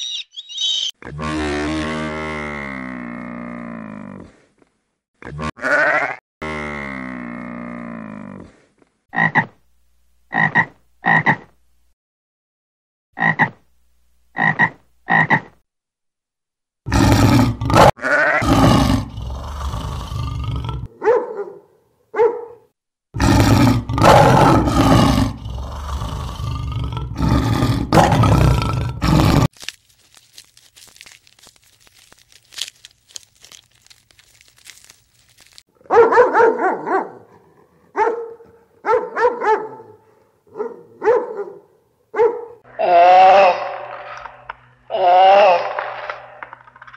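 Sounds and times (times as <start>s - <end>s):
lions roaring and growling: 16.9s - 20.9s, 23.2s - 29.5s.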